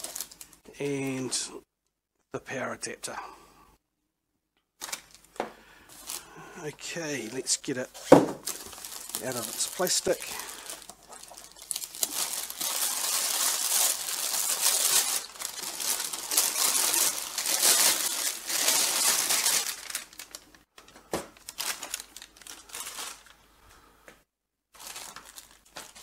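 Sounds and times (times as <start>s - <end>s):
plastic bag crinkling: 0.0s - 0.6s, 4.8s - 23.4s, 24.8s - 26.0s.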